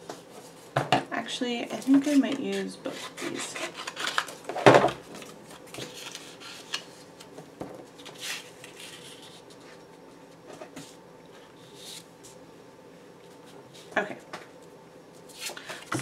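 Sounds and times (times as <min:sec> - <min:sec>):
cards rustling and scraping: 0:01.8 - 0:07.4, 0:08.0 - 0:09.8, 0:15.2 - 0:16.0.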